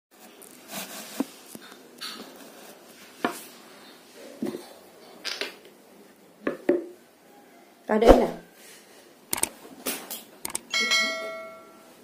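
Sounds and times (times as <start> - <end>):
soft handling rustles: 0.2 - 4.8.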